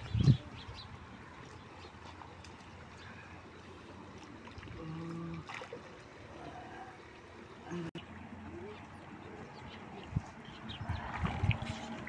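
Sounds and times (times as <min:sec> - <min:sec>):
river running: 0:00.0 - 0:12.0
splashing through water: 0:01.4 - 0:07.0, 0:10.9 - 0:12.0.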